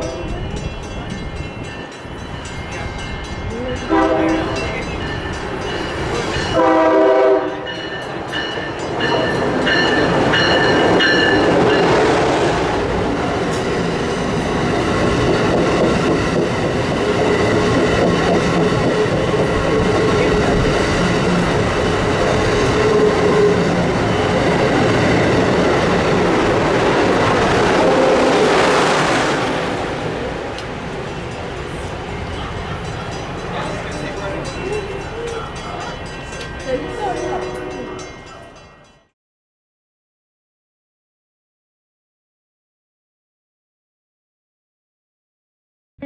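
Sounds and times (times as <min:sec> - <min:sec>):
train wheels rushing on rails: 0:00.0 - 0:38.4
train horn blast: 0:03.9 - 0:04.8, 0:06.5 - 0:07.8, 0:27.7 - 0:28.7, 0:36.9 - 0:38.1.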